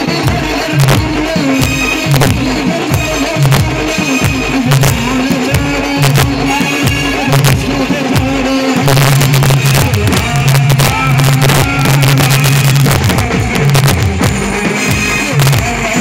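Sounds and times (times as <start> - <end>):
loud dance music: 0.0 - 16.0.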